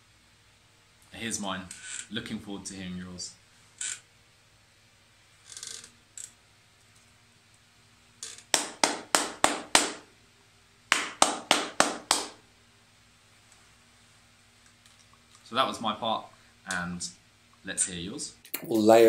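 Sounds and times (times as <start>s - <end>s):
rhythmic hand claps: 8.5s - 10.0s, 10.9s - 12.4s.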